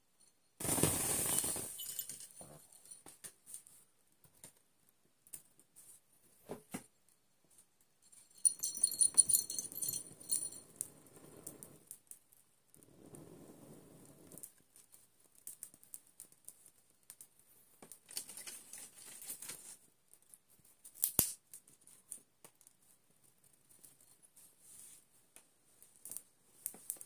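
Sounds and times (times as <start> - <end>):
rustling and scraping: 0.6 - 3.8, 18.1 - 19.9, 23.7 - 25.2
small bell jingling: 1.3 - 3.1, 8.0 - 11.5.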